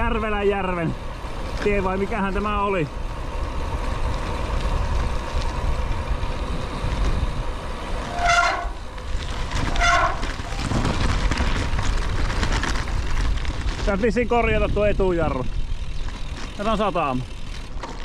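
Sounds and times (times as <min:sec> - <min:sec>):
wind noise on microphone: 0:03.5 - 0:16.6
bicycle brake squealing: 0:08.0 - 0:08.9, 0:09.5 - 0:11.0.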